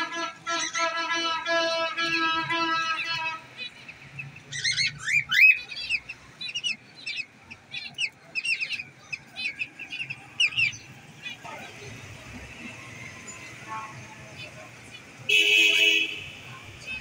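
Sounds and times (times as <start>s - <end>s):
cockatiels chirping: 3.0s - 11.8s.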